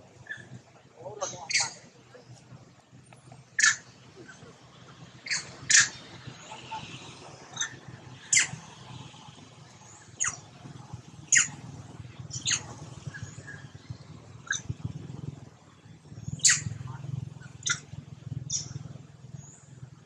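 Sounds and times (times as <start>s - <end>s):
high-pitched animal chirps: 1.2s - 1.8s, 3.6s - 3.8s, 5.2s - 6.0s, 16.4s - 16.8s, 17.6s - 17.8s.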